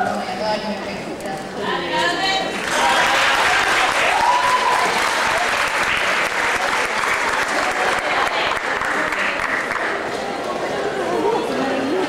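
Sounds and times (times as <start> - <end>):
audience applauding: 2.6 - 10.4.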